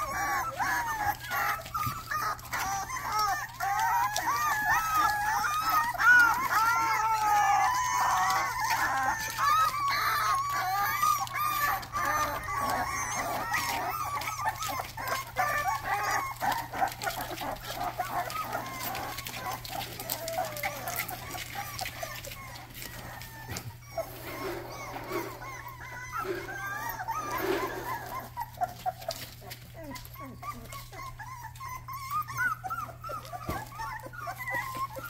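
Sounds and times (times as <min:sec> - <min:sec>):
puppies whining and squealing: 0:00.0 - 0:35.0
rustling clicks on plastic tarp: 0:00.1 - 0:25.6.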